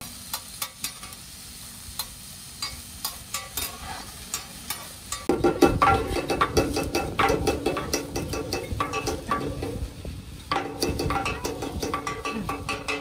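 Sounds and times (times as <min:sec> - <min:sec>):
peppers sizzling on griddle: 0:00.0 - 0:13.0
metal spatula tapping steel plate: 0:02.6 - 0:09.9, 0:10.5 - 0:13.0.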